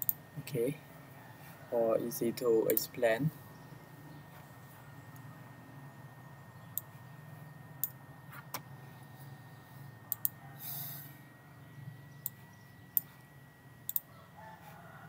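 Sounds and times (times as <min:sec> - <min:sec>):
low background hum: 0:00.0 - 0:15.0
computer mouse clicking: 0:10.1 - 0:10.4, 0:13.9 - 0:14.1.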